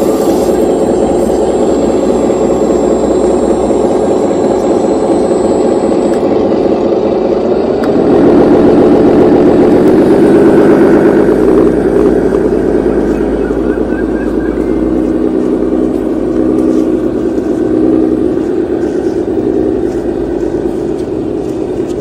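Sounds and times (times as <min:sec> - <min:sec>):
model excavator engine drone: 0:00.0 - 0:22.0.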